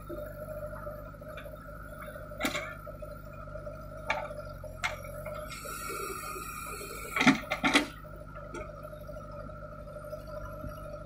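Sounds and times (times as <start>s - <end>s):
diesel engine running: 0.0s - 11.0s
hydraulic whine: 0.0s - 11.0s
high hiss: 5.5s - 7.3s.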